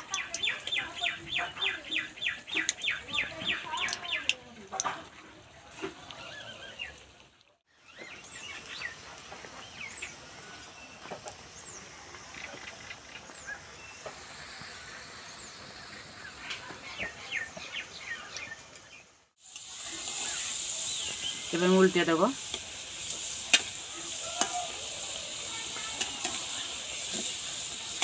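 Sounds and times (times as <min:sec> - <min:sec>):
birds chirping: 0:00.0 - 0:05.0, 0:06.0 - 0:07.2, 0:07.8 - 0:19.2, 0:19.9 - 0:22.4
food sizzling in oil: 0:00.0 - 0:28.0.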